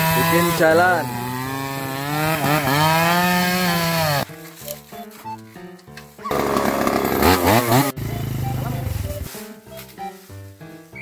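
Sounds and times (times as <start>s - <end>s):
chainsaw cutting log: 0.0s - 4.3s, 6.2s - 9.0s
quiet music: 4.3s - 6.5s, 7.2s - 11.0s
loud rough noise: 6.3s - 9.2s.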